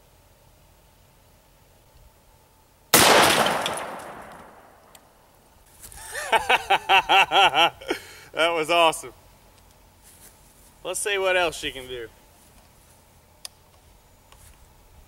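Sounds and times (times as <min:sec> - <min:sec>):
rifle shot echoing: 0:02.9 - 0:04.9.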